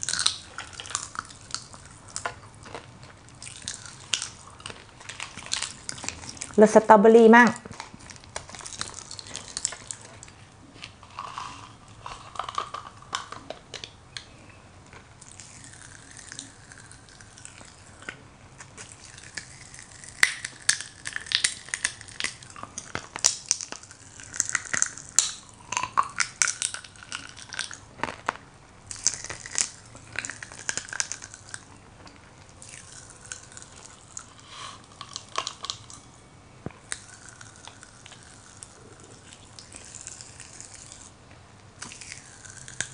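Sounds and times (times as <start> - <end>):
popping candy crackling in mouth: 0.0 - 42.9.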